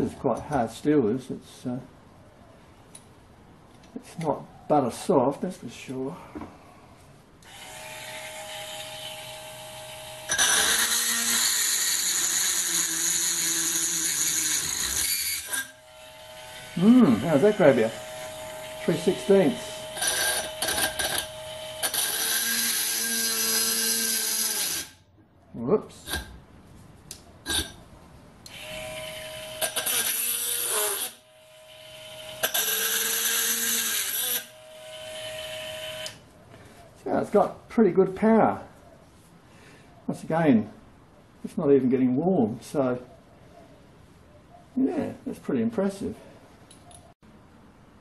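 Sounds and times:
electric drill whining into steel: 7.4s - 25.0s, 28.4s - 36.2s.

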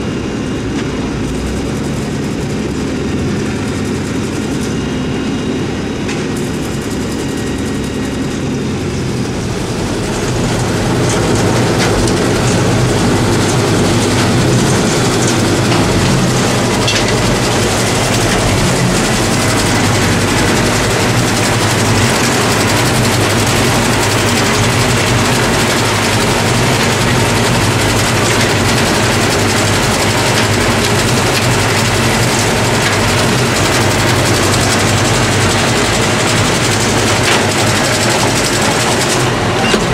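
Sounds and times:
forage harvester mechanical drone: 0.0s - 39.9s
rush of crop through machine: 9.1s - 39.9s.

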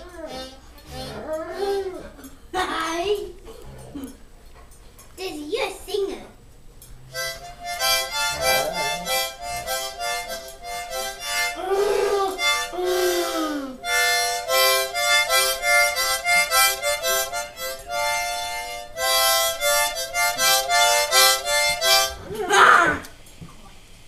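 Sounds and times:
harmonica chord bursts: 7.1s - 22.2s.

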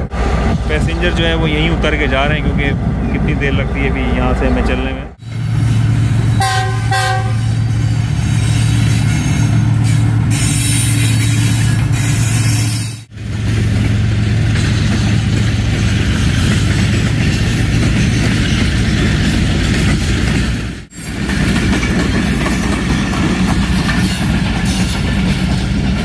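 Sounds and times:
moving train noise: 0.0s - 26.0s
train horn blasts: 6.4s - 7.6s.

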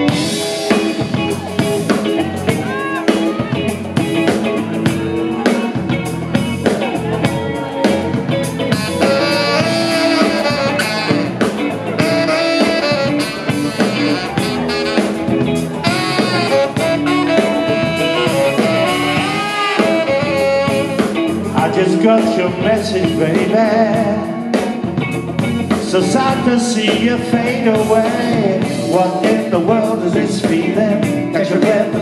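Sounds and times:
drum kit: 0.0s - 32.0s
electric guitar: 0.0s - 32.0s
saxophone melody: 7.3s - 21.9s.

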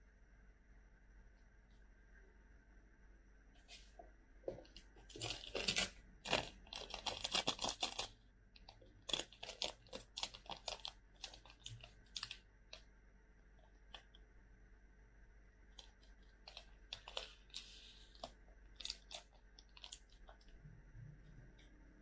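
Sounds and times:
plastic sachets tearing and crinkling: 5.1s - 8.1s, 9.0s - 12.4s.

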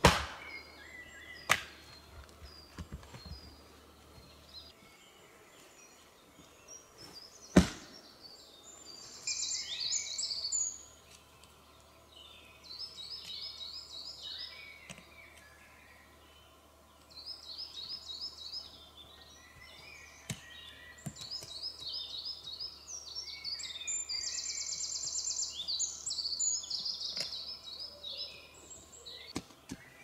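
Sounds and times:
axe chopping log: 0.0s - 0.6s, 1.5s - 1.8s, 7.5s - 8.0s
songbirds chirping: 0.0s - 30.0s.

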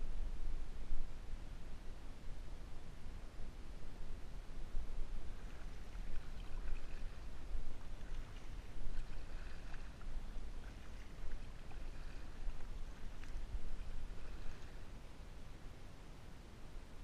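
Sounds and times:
steady low rumble: 0.0s - 17.0s
water lapping at hull: 5.0s - 16.1s
water splashing off paddle: 5.4s - 14.9s.

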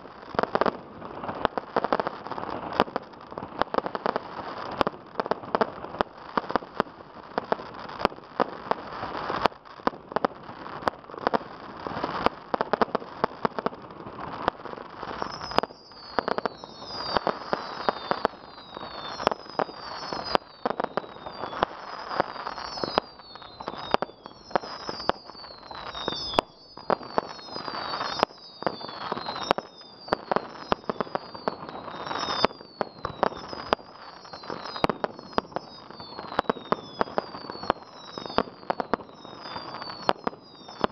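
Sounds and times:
fireworks bangs: 0.0s - 40.9s
fireworks crackling: 0.0s - 40.9s
falling whistles: 15.2s - 40.9s.

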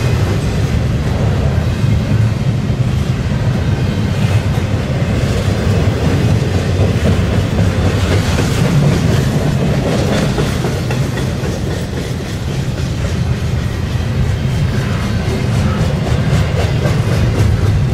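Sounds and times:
clickety-clack of train wheels: 0.0s - 17.9s
freight train wheels rumbling: 0.0s - 17.9s.

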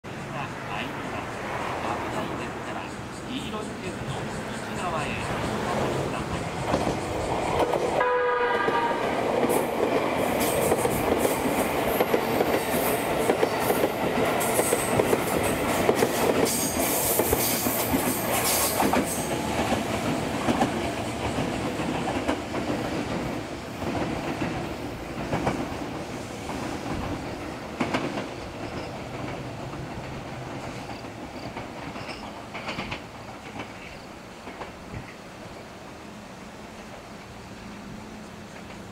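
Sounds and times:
train running noise: 0.0s - 38.9s
train horn blast: 8.0s - 9.2s.

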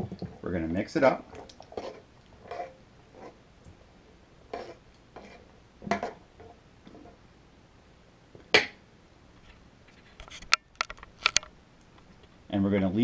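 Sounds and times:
metal spoon scraping a pan: 1.3s - 3.4s, 4.5s - 7.2s.

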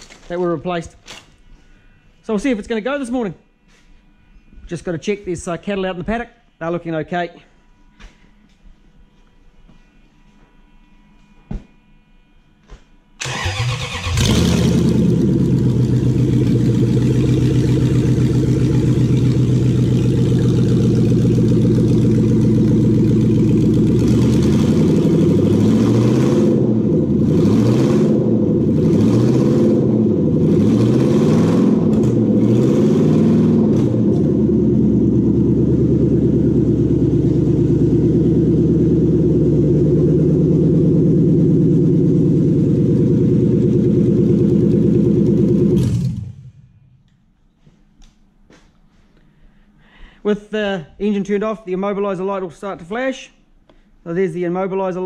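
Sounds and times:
engine cranking and starting: 13.2s - 19.4s, 45.6s - 46.6s
engine idling and revving: 13.2s - 46.9s.

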